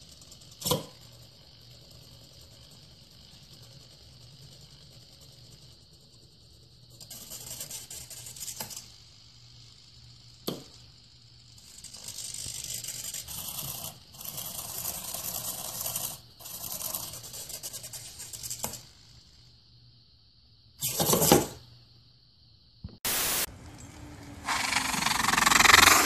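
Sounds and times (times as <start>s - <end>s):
small motor whirring: 6.6s - 19.4s, 23.6s - 26.0s.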